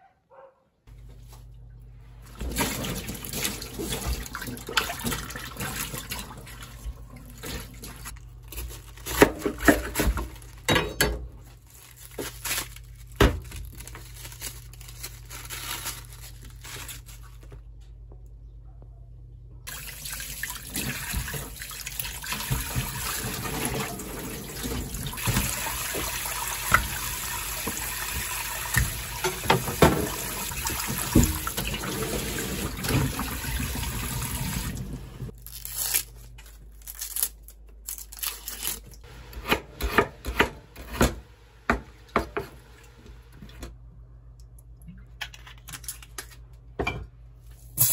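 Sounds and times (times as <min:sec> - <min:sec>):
water splashing and sloshing: 0:01.3 - 0:08.2, 0:19.7 - 0:35.3
tap running: 0:20.8 - 0:35.3
cabbage leaves tearing: 0:35.3 - 0:39.0.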